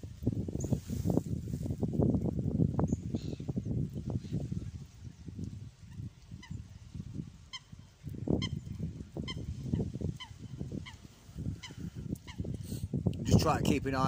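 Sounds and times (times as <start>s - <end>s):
wind rumbling on microphone: 0.0s - 14.0s
water bird calling: 5.8s - 6.7s, 7.4s - 12.6s.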